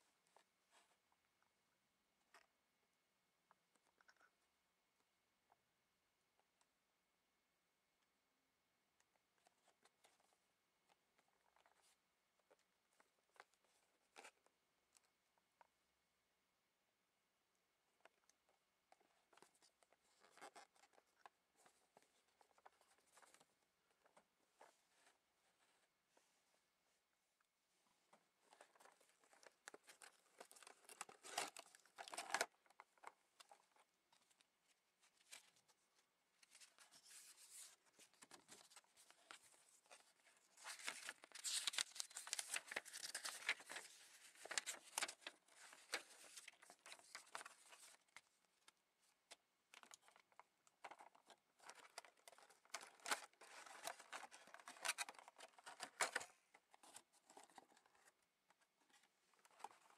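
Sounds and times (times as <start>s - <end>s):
plastic packaging crinkling and tearing: 29.6s - 32.8s, 40.5s - 48.0s.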